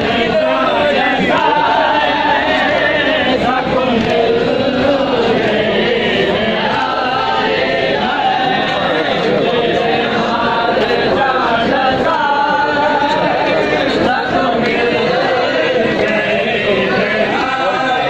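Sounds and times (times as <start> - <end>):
crowd of men chanting a lament: 0.0 - 18.0.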